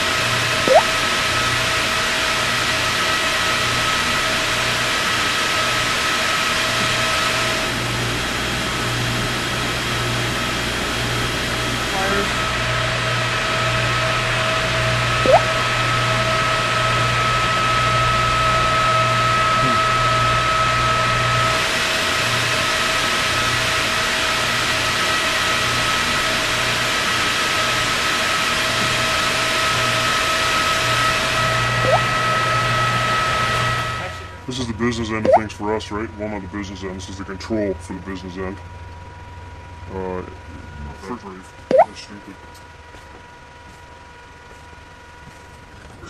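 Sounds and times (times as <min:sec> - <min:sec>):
engine room low hum: 0:00.0 - 0:46.0
brief rising chirp: 0:15.3 - 0:15.5.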